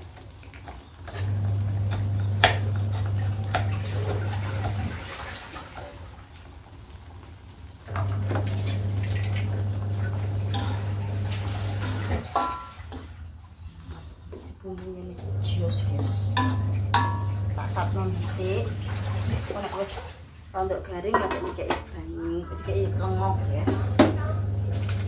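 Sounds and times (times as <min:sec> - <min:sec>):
low electric hum: 0:01.1 - 0:05.0, 0:07.8 - 0:12.4, 0:14.6 - 0:19.6, 0:22.1 - 0:25.0.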